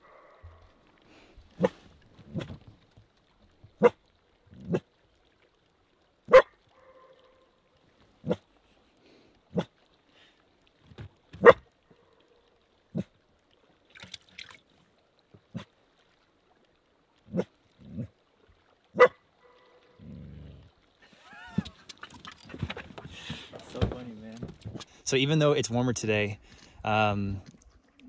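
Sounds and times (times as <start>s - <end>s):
dog barking: 6.3s - 7.4s, 11.4s - 11.6s, 19.0s - 19.8s
echo of dog barks: 6.3s - 7.5s, 19.0s - 20.0s.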